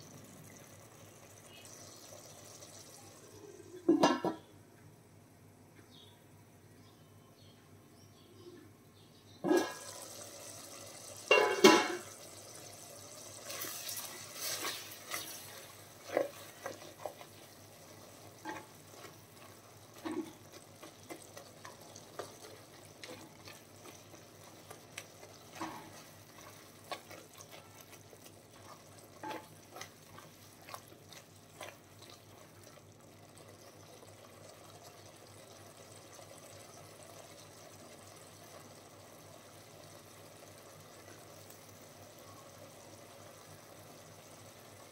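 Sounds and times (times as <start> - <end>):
faint steady hiss: 0.0 - 44.9
utensil knocking and scraping in pan: 11.3 - 12.1, 18.4 - 32.2.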